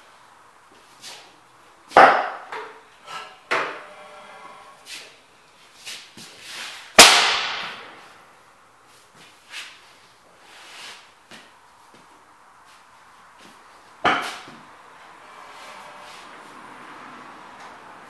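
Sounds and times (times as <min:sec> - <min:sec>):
engine backfire bang: 0:07.0 - 0:07.9.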